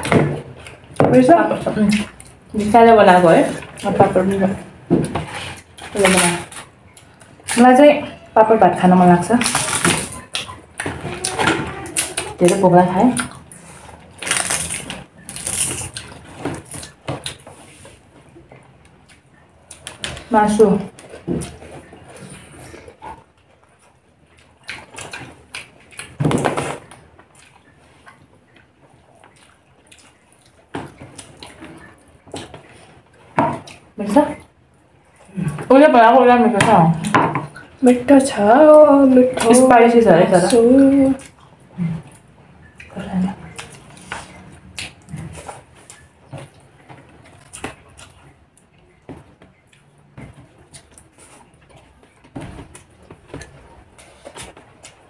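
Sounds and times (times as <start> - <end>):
chewing and mouth noises: 9.4 - 20.3, 20.9 - 35.7, 40.3 - 55.0.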